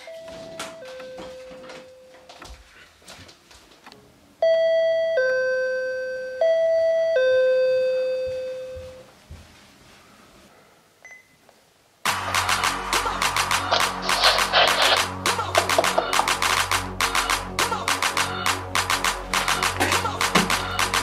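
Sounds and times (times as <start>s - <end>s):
two-tone door chime: 0.0s - 2.2s, 4.4s - 9.0s.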